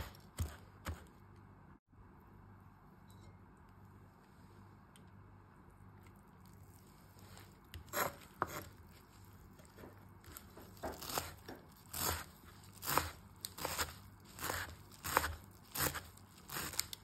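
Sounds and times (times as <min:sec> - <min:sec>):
knife chopping dry noodles: 0:00.0 - 0:01.4, 0:07.7 - 0:17.0.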